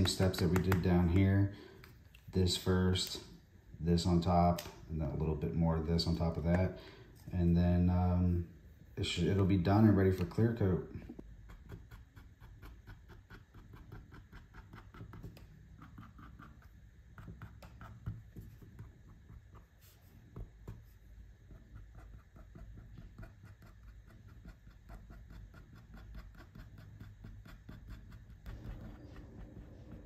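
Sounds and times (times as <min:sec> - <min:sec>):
faint low hum: 0:00.0 - 0:30.0
marker tip scratching on plastic: 0:21.5 - 0:30.0.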